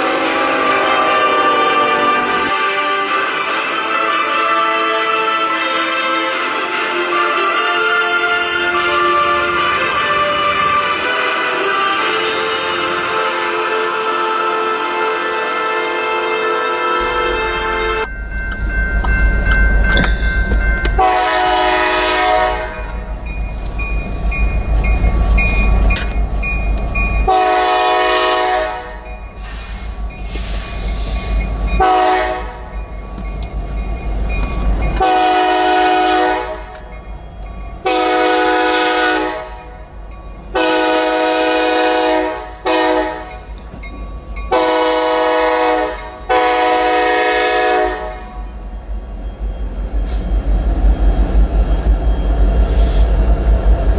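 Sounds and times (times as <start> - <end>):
locomotive air horn blasts: 0.0 - 18.1, 21.0 - 22.8, 27.3 - 29.8, 31.8 - 32.7, 35.0 - 36.8, 37.8 - 39.7, 40.5 - 43.4, 44.5 - 48.4
freight train rumbling: 0.0 - 53.9.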